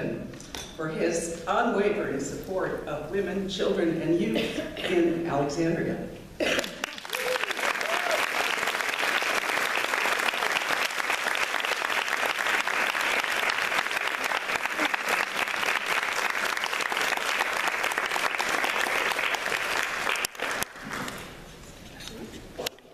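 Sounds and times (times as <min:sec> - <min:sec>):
audience applauding: 0:06.6 - 0:21.4.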